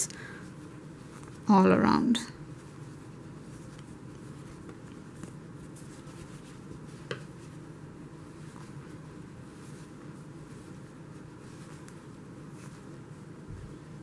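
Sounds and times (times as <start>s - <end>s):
low room hum: 0.0s - 14.0s
crochet hook rustling yarn: 0.6s - 1.5s, 2.5s - 14.0s.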